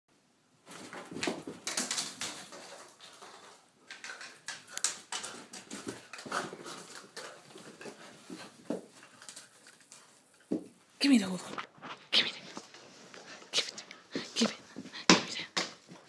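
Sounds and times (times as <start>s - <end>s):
plastic hoop scraping on floor: 0.7s - 10.7s.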